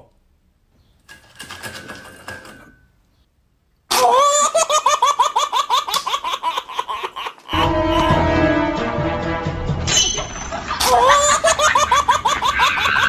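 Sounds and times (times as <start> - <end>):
high-pitched giggling laugh: 3.9 - 8.3, 10.0 - 13.0.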